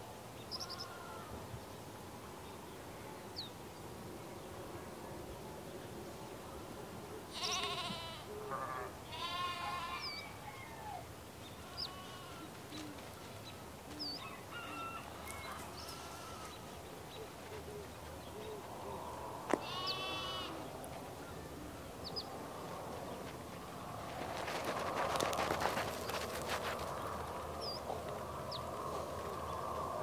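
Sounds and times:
sparrows chirping: 0.4s - 1.0s, 7.4s - 7.9s, 11.4s - 22.4s, 26.8s - 29.6s.

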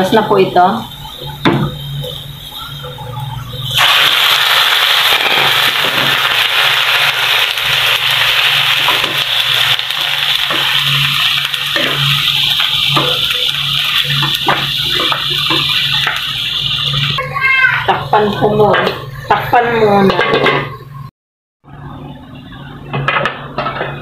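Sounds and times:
chicken sizzling in hot oil: 1.0s - 18.3s.

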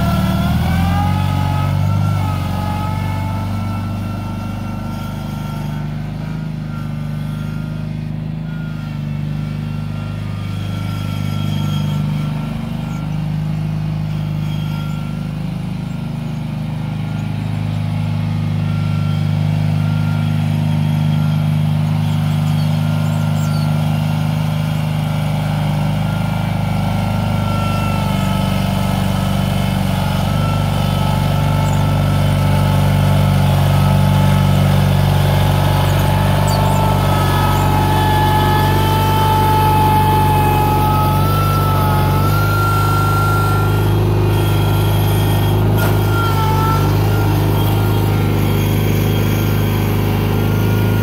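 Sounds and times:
tractor engine running under load: 0.0s - 51.0s
wavering whine: 24.7s - 51.0s.

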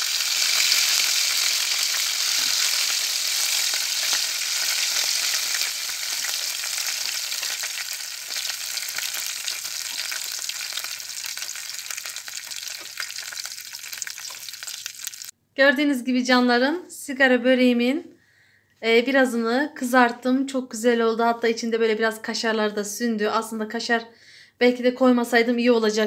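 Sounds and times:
pastries sizzling in hot oil: 0.0s - 15.3s.

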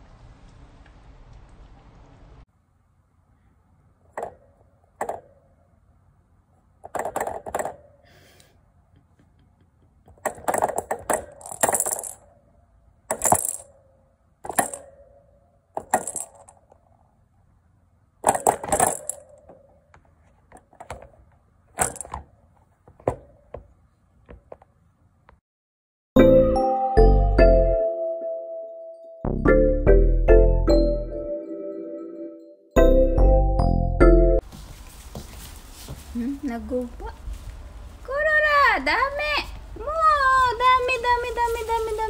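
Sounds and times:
cat toy clinking and rattling: 10.1s - 12.3s, 13.1s - 13.8s, 14.5s - 15.1s, 15.8s - 16.7s, 18.2s - 19.6s, 21.8s - 22.2s.

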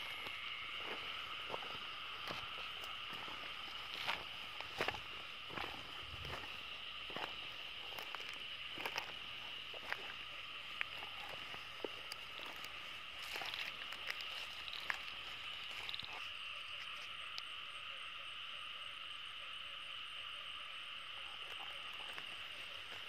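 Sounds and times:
grass rustling underfoot: 0.0s - 17.2s, 21.6s - 23.0s
frogs calling: 0.0s - 23.0s
insects chirping: 0.0s - 23.0s.

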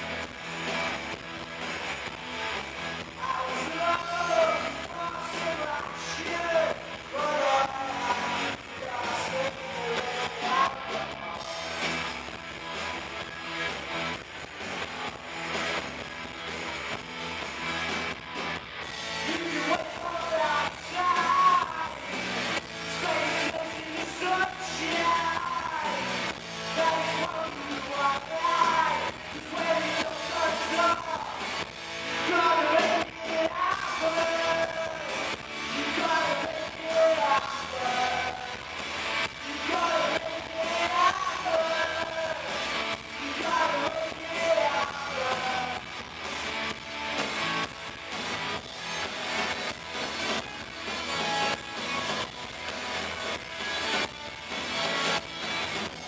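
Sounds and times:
live rock band playing: 0.0s - 56.0s
male vocalist singing: 3.1s - 11.5s, 19.2s - 46.0s.

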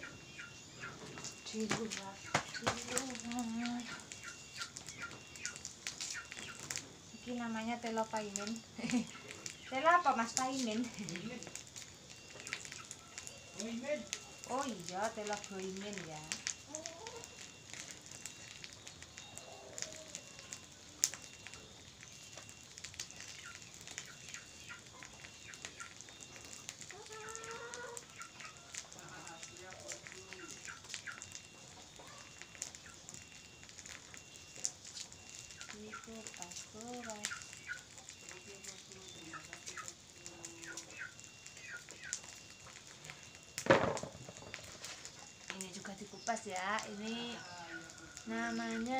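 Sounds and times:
small birds chirping: 0.0s - 48.9s
chicks peeping: 36.9s - 42.4s.

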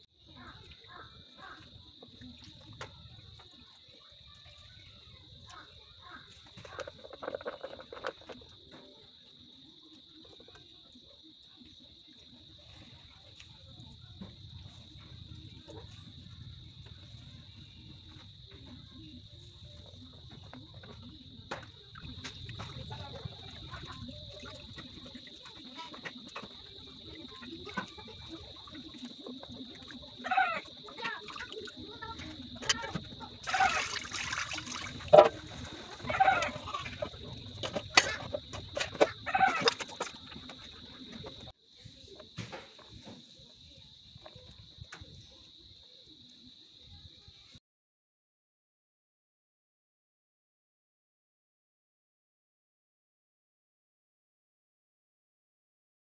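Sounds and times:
wet squelches of squeezing by hand: 33.4s - 41.4s.

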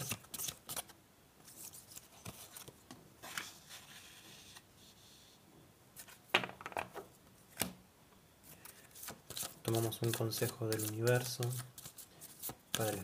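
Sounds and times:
paper cards rustling: 8.5s - 13.0s.

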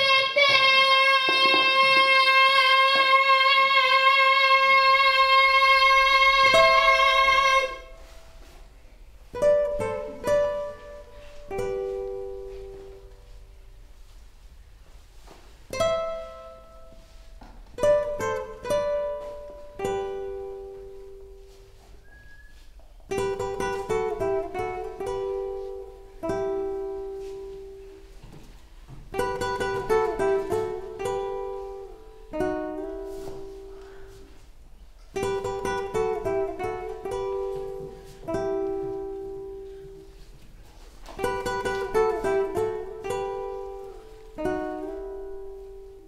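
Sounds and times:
plucked string instrument melody: 5.6s - 8.5s, 9.2s - 13.4s, 15.7s - 21.7s, 23.1s - 28.0s, 29.1s - 34.0s, 35.1s - 40.3s, 41.0s - 46.0s.

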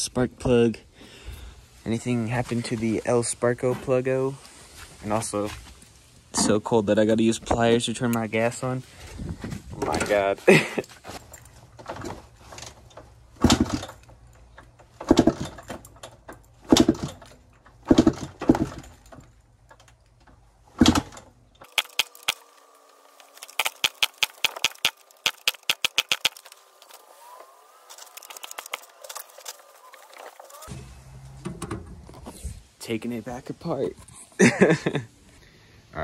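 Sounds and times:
dirt bike being kick-started: 9.8s - 14.2s, 14.8s - 19.9s, 23.2s - 30.8s
quick light clicks: 21.6s - 22.5s, 23.2s - 27.0s.

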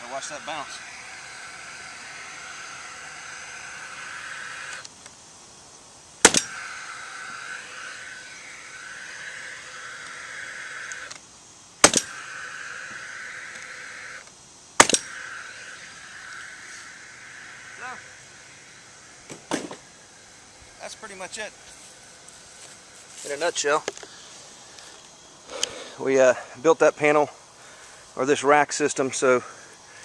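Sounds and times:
steady high hum: 0.0s - 30.0s
power nailer firing: 6.2s - 7.9s, 11.8s - 12.4s, 14.8s - 15.2s, 19.3s - 19.8s.

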